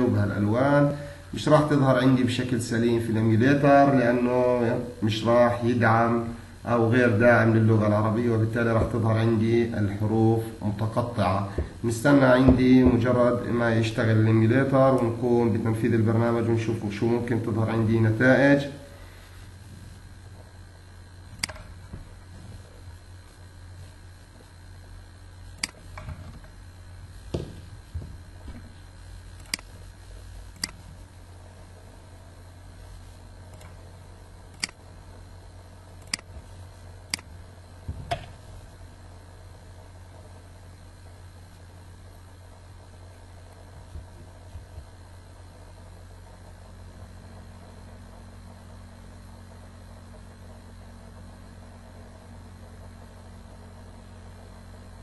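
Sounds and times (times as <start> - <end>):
low electrical hum: 0.0 - 55.0
dull knocks: 11.5 - 11.8, 27.2 - 28.7, 37.8 - 38.4
computer mouse clicks: 21.4 - 21.7, 25.6 - 26.1, 29.4 - 29.7, 30.6 - 30.9, 34.5 - 34.8, 36.0 - 36.3.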